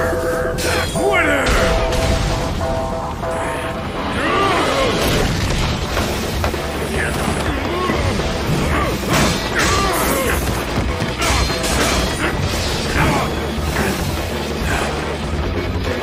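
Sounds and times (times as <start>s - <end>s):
battle music: 0.0s - 16.0s
blades clashing against swords: 7.4s - 15.0s.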